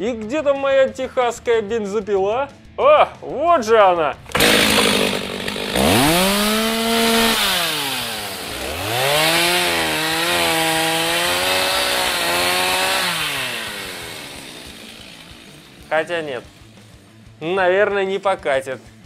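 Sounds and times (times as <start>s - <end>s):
chainsaw engine revving: 4.2s - 17.0s.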